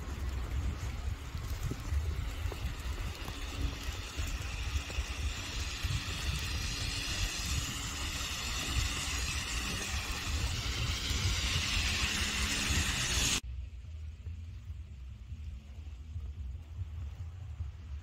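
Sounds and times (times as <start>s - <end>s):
tyres hissing on slushy road: 0.0s - 13.4s
wind rumble on microphone: 0.0s - 18.0s.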